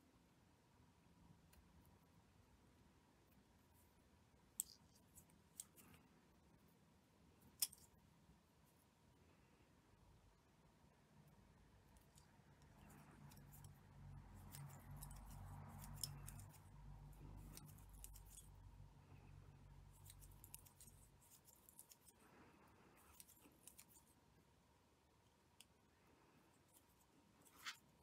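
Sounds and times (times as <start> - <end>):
shuttle and thread clicks and rustles: 4.5 - 6.1, 7.4 - 8.0, 11.8 - 24.3, 25.2 - 28.0.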